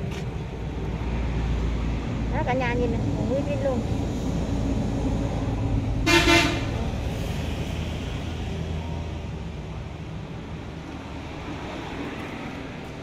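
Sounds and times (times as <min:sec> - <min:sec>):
vehicle horn toot: 0:06.0 - 0:06.7.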